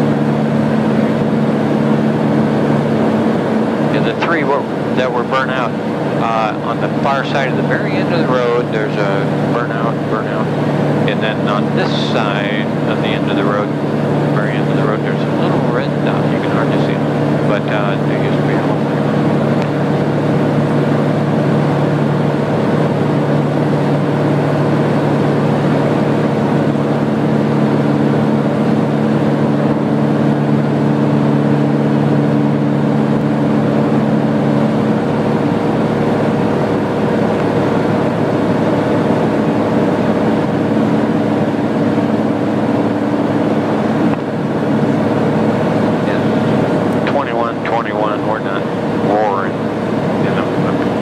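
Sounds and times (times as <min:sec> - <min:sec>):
light aircraft engine drone: 0:00.0 - 0:51.0.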